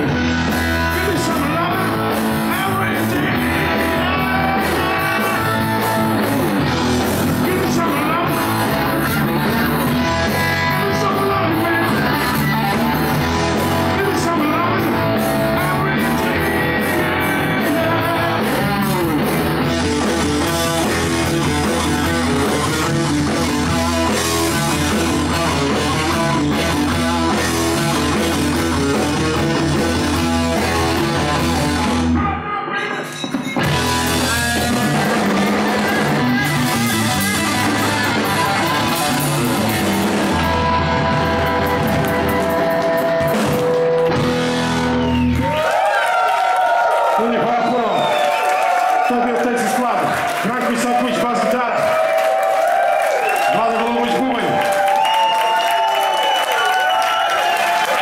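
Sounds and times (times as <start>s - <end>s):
distorted electric guitar: 0.0s - 45.6s
drum kit: 0.0s - 45.7s
bass guitar: 0.0s - 46.1s.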